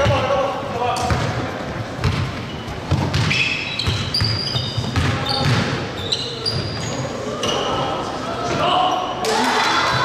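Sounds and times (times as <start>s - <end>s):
sneakers squeaking on court: 1.0s - 8.0s
basketball dribbling on wooden floor: 2.9s - 5.7s.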